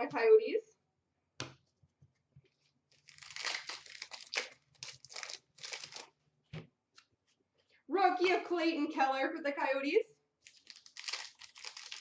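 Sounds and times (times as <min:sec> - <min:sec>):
plastic wrapper tearing and crinkling: 0:02.9 - 0:06.2, 0:10.4 - 0:12.0.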